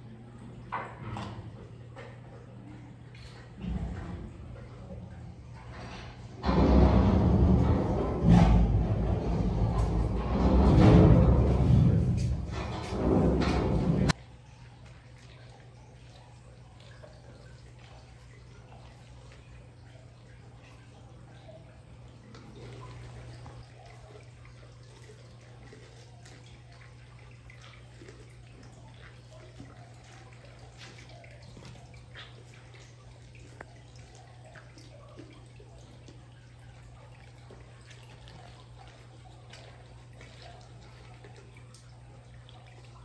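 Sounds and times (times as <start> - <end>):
steady low hum: 0.0 - 43.0
tiger chewing and licking: 14.0 - 43.0.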